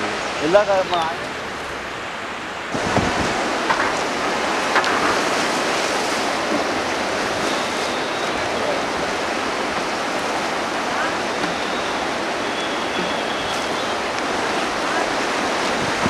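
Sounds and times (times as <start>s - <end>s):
river current rushing: 0.0s - 16.0s
wind on microphone: 2.7s - 9.2s, 13.0s - 16.0s.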